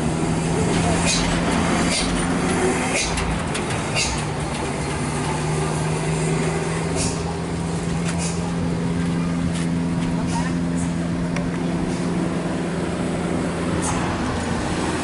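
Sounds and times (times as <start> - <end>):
engine idling: 0.0 - 15.0
indistinct voices: 0.0 - 15.0.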